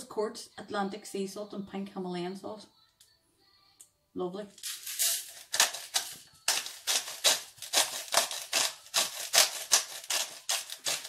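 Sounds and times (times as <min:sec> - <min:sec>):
salt grinder crunching: 0:04.6 - 0:11.0.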